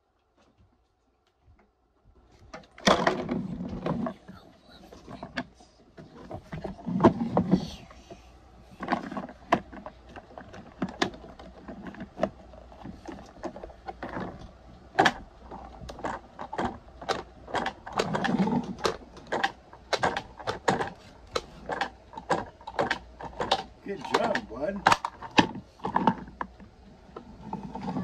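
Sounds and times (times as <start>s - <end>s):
plastic toy clicks and knocks: 8.8s - 26.7s.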